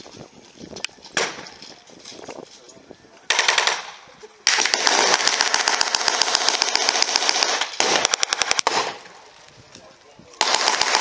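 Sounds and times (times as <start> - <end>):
machine gun firing bursts: 3.3 - 3.9, 4.5 - 9.0, 10.4 - 11.0.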